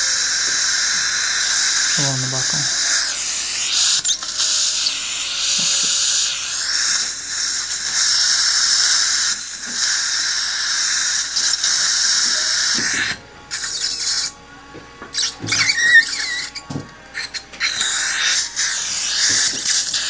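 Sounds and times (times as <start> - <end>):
dental handpiece drilling: 0.0 - 14.4, 15.0 - 20.0
surgical suction hissing: 0.2 - 14.3, 15.1 - 20.0.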